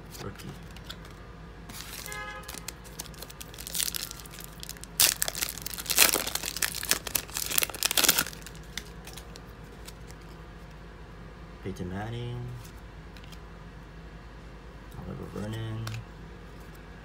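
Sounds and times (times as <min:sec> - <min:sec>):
foil wrapper tearing and crinkling: 0:01.7 - 0:10.2.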